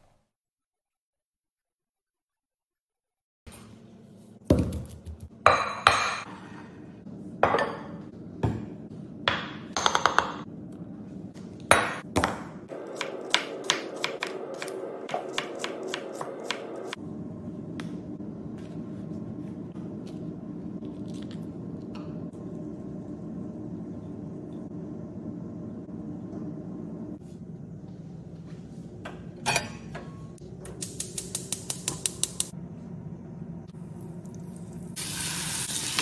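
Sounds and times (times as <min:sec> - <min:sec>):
knife chopping onion: 0:12.2 - 0:17.0.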